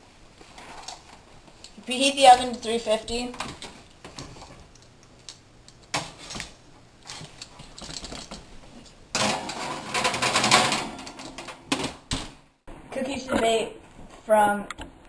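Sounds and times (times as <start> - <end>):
cookie sheet scraping on wire rack: 9.2 - 11.5.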